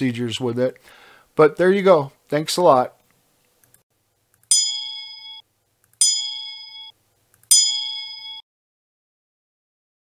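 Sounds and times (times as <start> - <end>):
bell-like chime: 4.5 - 5.4, 6.0 - 6.9, 7.5 - 8.4.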